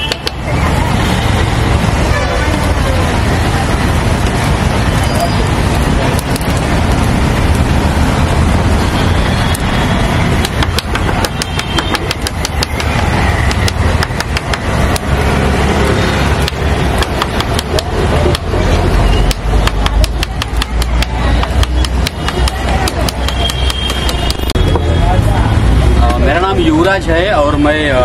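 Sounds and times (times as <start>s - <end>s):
sharp clicks and crackles: 0.0s - 1.0s, 3.4s - 8.8s, 9.4s - 24.8s
low street rumble: 0.0s - 28.0s.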